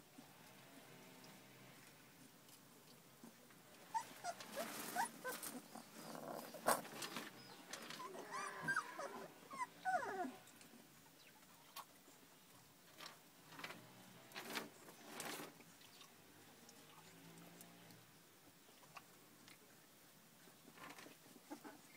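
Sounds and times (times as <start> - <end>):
puppies scuffling: 2.5 - 10.5
puppies whimpering and squealing: 3.9 - 10.5.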